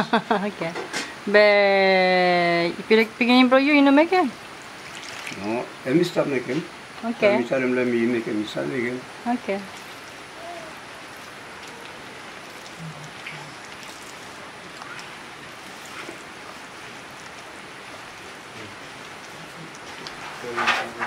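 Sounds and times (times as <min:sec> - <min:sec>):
steady background hiss: 0:00.0 - 0:21.0.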